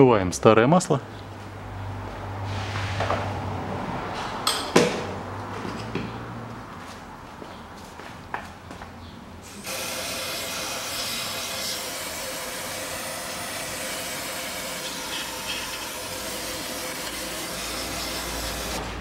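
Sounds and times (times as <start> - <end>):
aerosol can spraying: 9.6 - 18.8.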